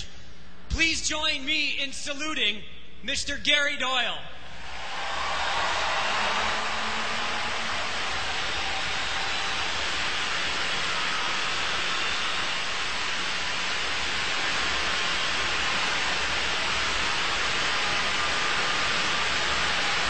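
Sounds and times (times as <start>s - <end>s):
crowd applauding: 4.5s - 20.0s.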